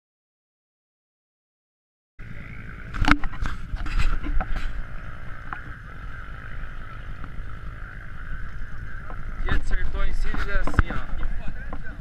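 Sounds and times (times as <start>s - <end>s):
vehicle rumble: 2.2s - 12.0s
wind noise: 2.8s - 12.0s.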